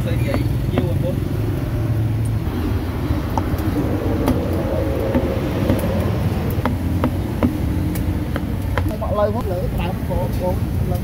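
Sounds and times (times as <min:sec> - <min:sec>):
street traffic hum: 0:00.0 - 0:11.0
cleaver knocking on chopping block: 0:00.3 - 0:01.0, 0:06.6 - 0:07.6.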